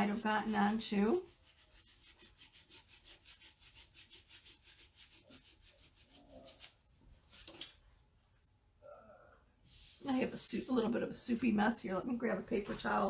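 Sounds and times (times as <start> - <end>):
sponge scrubbing wet screen: 0.0 - 7.6.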